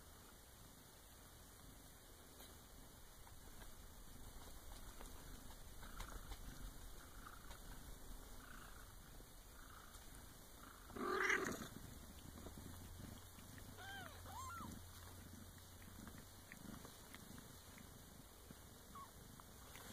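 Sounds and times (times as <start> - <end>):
cats purring: 0.0 - 19.9
high kitten mews: 13.8 - 14.8.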